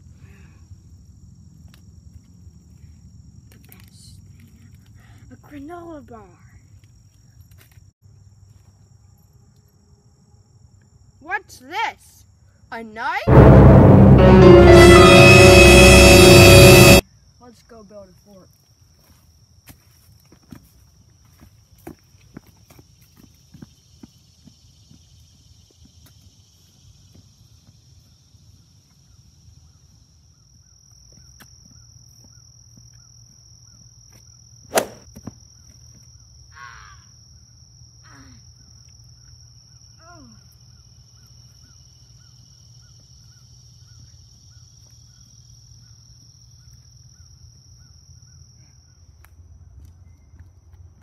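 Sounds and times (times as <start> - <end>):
high-pitched insect drone: 13.3 - 17.0.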